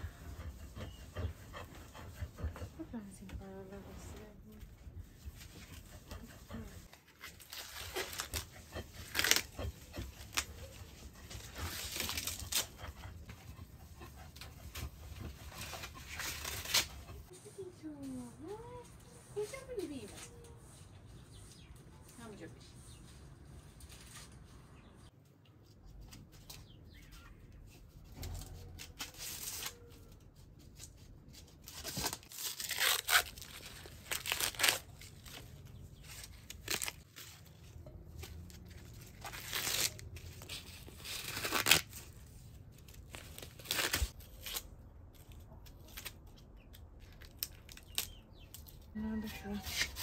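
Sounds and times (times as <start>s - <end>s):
corn husks ripping: 7.0s - 13.1s, 15.5s - 17.1s, 30.8s - 37.6s, 38.2s - 50.0s.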